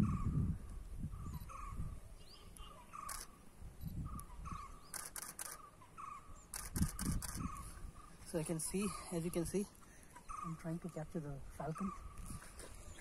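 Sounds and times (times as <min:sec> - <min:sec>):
camera shutter clicking: 0:03.0 - 0:03.3, 0:04.8 - 0:05.7, 0:06.5 - 0:07.6.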